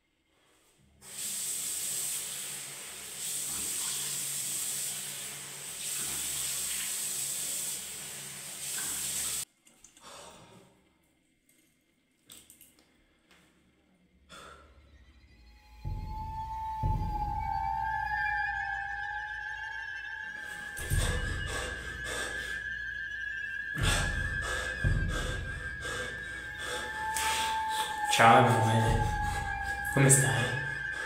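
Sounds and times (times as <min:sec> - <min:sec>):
faint splashes and drips: 0:01.1 - 0:10.1, 0:11.4 - 0:13.0.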